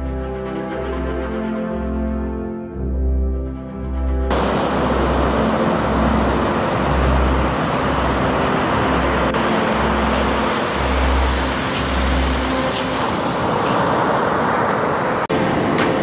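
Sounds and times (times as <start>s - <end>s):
ocean surf breaking: 4.3s - 16.0s.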